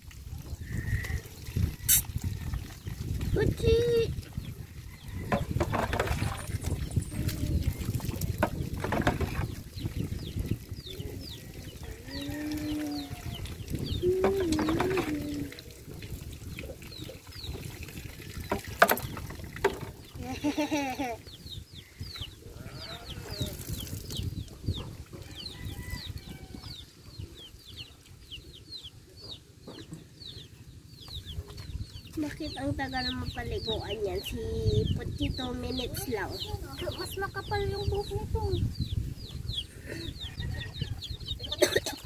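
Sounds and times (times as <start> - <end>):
water being scooped and poured: 0.0 - 4.8, 5.4 - 20.2
small birds chirping: 0.4 - 42.0
wavering animal calls: 11.1 - 15.6.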